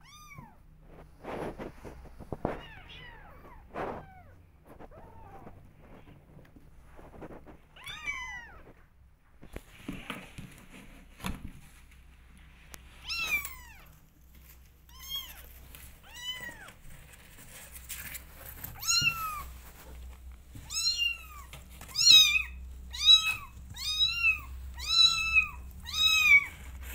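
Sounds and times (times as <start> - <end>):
soft knocks and rustles: 3.4 - 22.1
kittens meowing: 18.8 - 19.5, 20.6 - 26.6.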